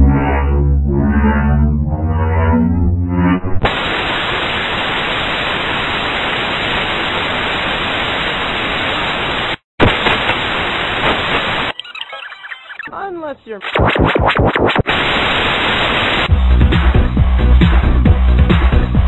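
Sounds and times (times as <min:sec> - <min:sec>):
low musical drone: 0:00.0 - 0:03.5
white-noise static: 0:03.6 - 0:11.8, 0:13.7 - 0:16.3.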